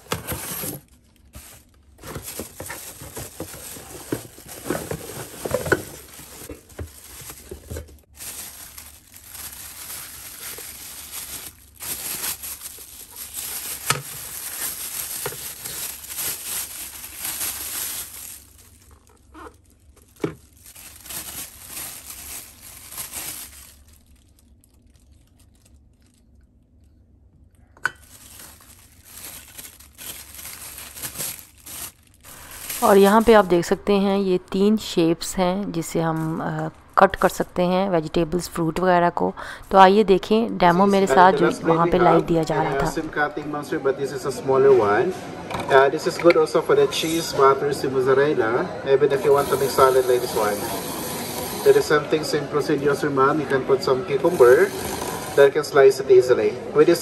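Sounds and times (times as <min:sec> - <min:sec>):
plastic bag crinkling: 0:00.0 - 0:26.9, 0:27.9 - 0:43.4.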